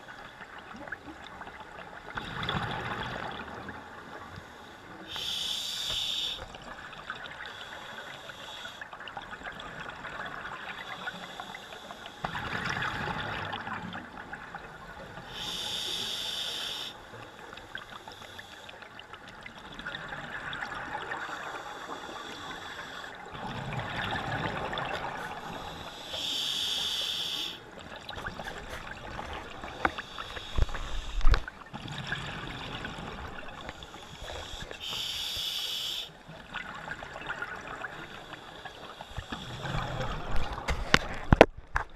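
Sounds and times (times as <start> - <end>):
regulator hissing inhale: 4.4 - 6.5, 7.5 - 8.8, 10.8 - 12.3, 15.3 - 17.0, 17.9 - 18.8, 21.4 - 23.2, 25.2 - 27.7, 29.6 - 31.5, 33.7 - 36.2, 38.0 - 40.0
gurgling exhaled bubbles: 23.3 - 26.2.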